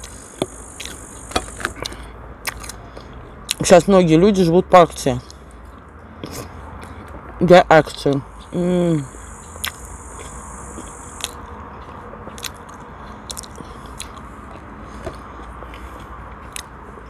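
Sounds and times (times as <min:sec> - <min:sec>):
person chewing food: 0:00.0 - 0:03.6, 0:05.2 - 0:07.2, 0:09.4 - 0:17.0
wet mouth clicks and crunches: 0:00.8 - 0:03.7, 0:09.6 - 0:11.4, 0:12.3 - 0:16.8.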